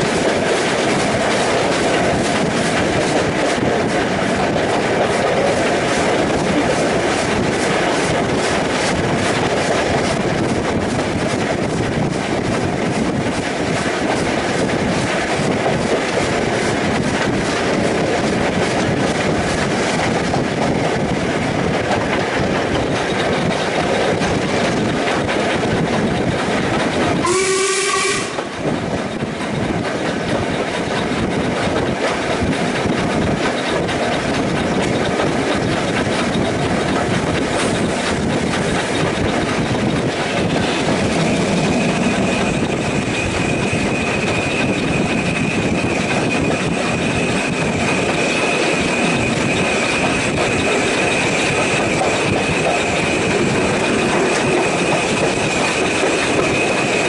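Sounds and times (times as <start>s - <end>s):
train rumble: 0.0s - 57.0s
wheels clacking over rail joints: 0.0s - 57.0s
steam whistle blast: 27.2s - 28.5s.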